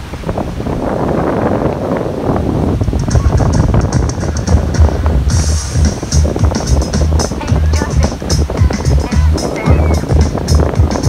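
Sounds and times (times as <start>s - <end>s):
music with deep bass: 2.9s - 11.0s.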